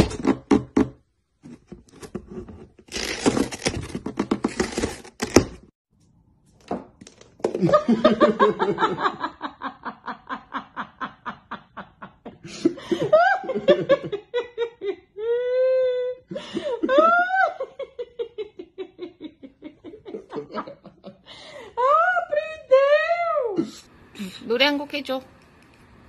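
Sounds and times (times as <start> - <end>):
person laughing hard: 7.6 - 21.2.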